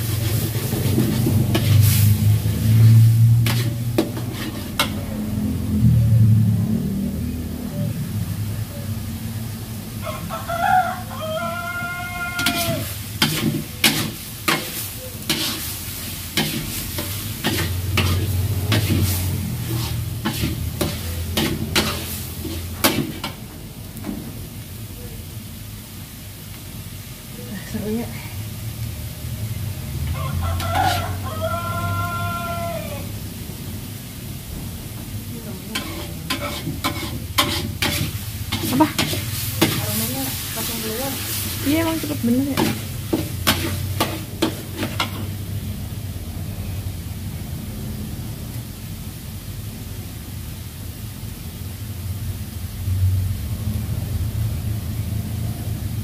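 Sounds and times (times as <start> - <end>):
metal spatula scraping a wok: 0.0 - 5.6, 11.2 - 23.4, 30.5 - 32.3, 35.6 - 45.6
low sizzle: 0.0 - 56.0.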